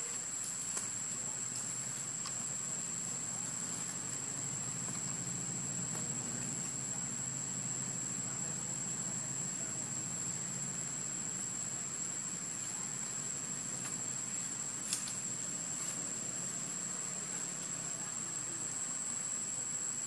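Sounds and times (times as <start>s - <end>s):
even hiss: 0.0s - 20.0s.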